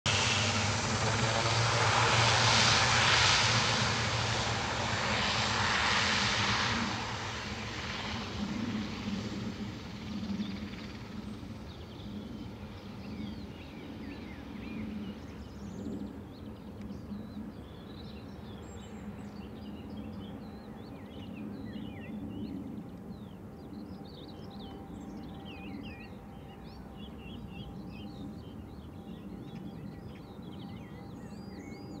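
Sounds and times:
turboprop aircraft taking off: 0:00.0 - 0:32.0
small birds singing: 0:10.2 - 0:32.0.

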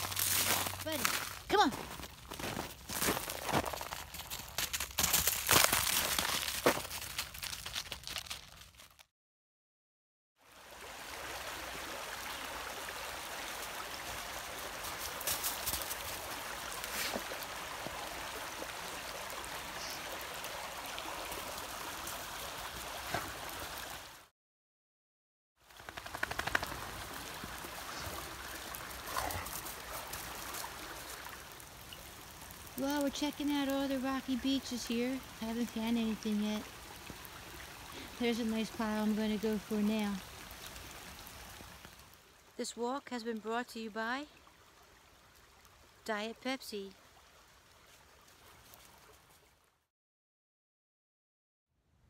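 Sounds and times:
footsteps in snow and leaves: 0:00.0 - 0:09.1, 0:14.8 - 0:18.0
creek rushing: 0:10.4 - 0:24.3, 0:26.0 - 0:32.8.

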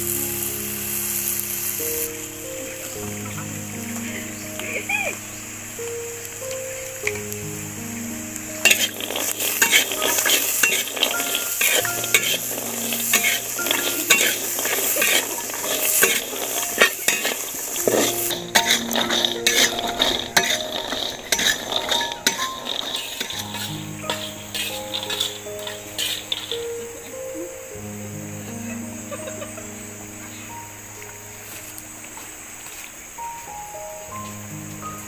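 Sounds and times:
background music: 0:00.0 - 0:35.0
food sizzling in a pan: 0:00.0 - 0:35.0
utensil clinking on pan: 0:08.6 - 0:26.7.

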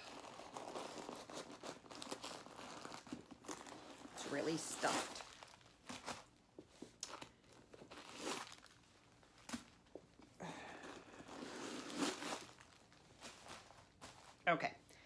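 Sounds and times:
stuffing rustling and crinkling: 0:00.0 - 0:14.8.

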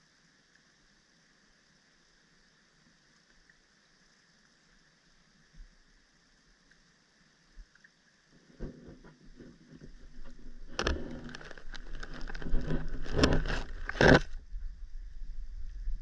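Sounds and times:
muffled clicks and knocks: 0:08.5 - 0:14.4
low rumble: 0:09.8 - 0:16.0.

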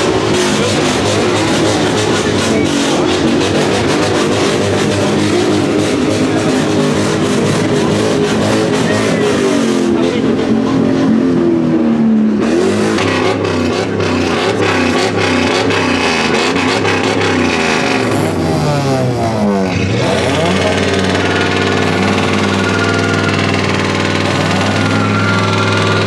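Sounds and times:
car engine running: 0:00.0 - 0:26.0.

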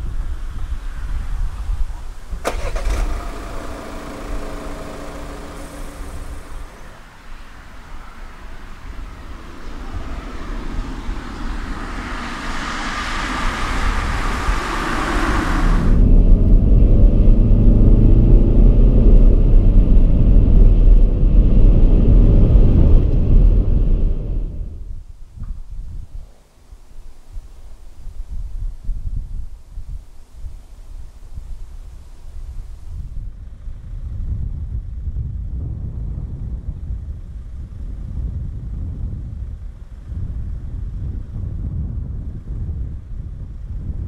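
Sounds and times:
tyre and road rumble: 0:00.0 - 0:25.6
wind buffeting microphone: 0:00.0 - 0:44.0
diesel engine starting and idling: 0:02.3 - 0:20.2.

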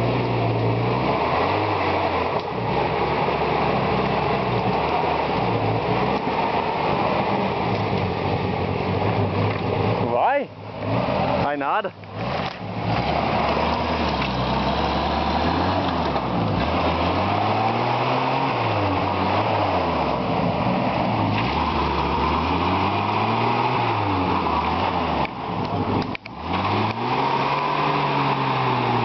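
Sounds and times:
engine revving: 0:00.0 - 0:29.0.

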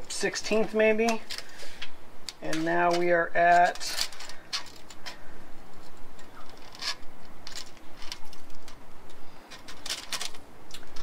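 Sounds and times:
rustling: 0:00.0 - 0:11.0
tape measure clicking and rattling: 0:02.3 - 0:05.2.

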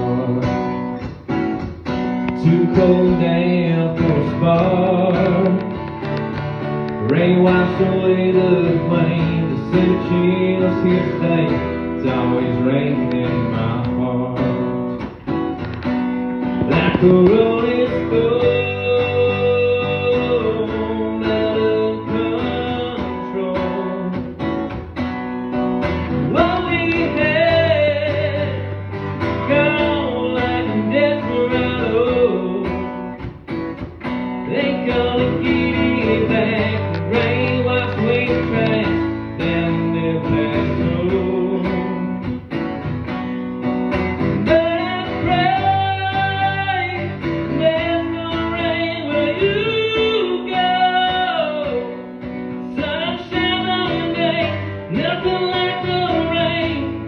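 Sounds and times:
man singing a slow ballad: 0:00.0 - 0:01.0, 0:02.3 - 0:05.9, 0:07.0 - 0:15.2, 0:16.6 - 0:24.5, 0:26.1 - 0:33.2, 0:34.4 - 0:42.6, 0:44.2 - 0:57.0
acoustic guitar strumming: 0:00.0 - 0:57.0.

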